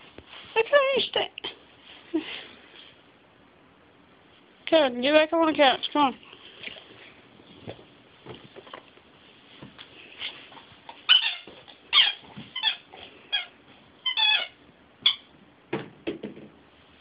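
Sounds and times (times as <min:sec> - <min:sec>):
squeaky dog toy squeaking: 0:11.1 - 0:15.3.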